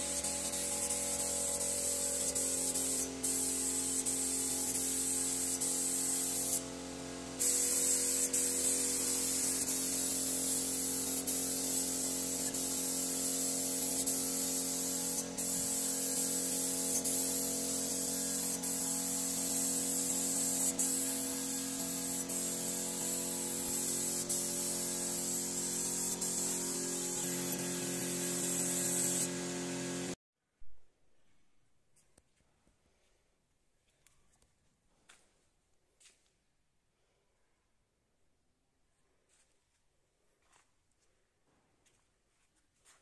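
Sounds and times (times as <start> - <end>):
paint spray gun hissing: 0.0 - 30.2.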